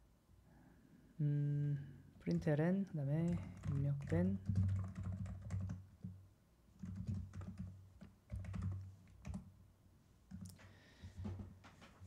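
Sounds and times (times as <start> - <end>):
computer keyboard typing: 3.2 - 6.2, 6.8 - 9.5, 10.3 - 10.6.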